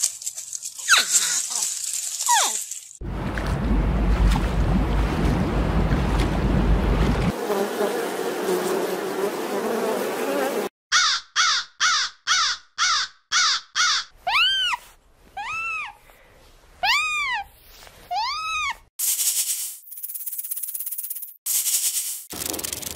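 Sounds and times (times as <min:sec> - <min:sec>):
crows cawing: 0:10.9 - 0:14.1.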